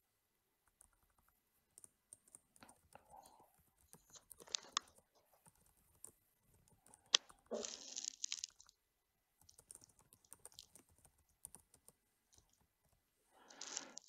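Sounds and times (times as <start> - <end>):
computer keyboard typing: 3.8 - 8.6, 9.4 - 12.6.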